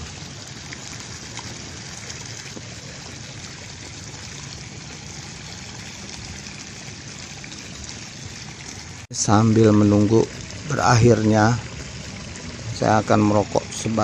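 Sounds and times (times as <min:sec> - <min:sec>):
open air ambience: 0:00.0 - 0:14.0.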